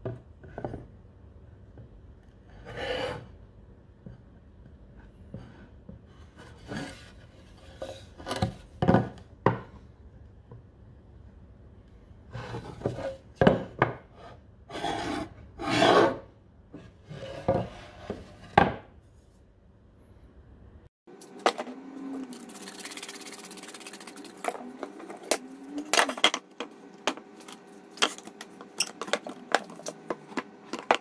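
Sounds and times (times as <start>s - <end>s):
metal square scraping on wood: 14.2s - 16.2s.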